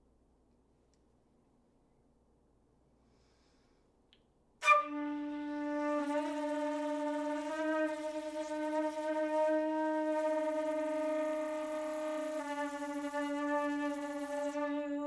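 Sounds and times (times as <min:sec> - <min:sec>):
flute holding low notes: 0:04.6 - 0:15.0.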